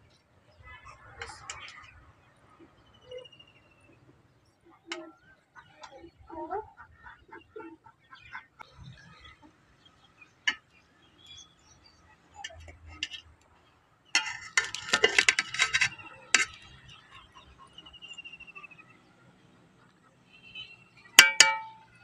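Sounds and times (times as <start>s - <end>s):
spoon clinking against steel pot: 14.2s - 16.8s, 21.2s - 22.0s.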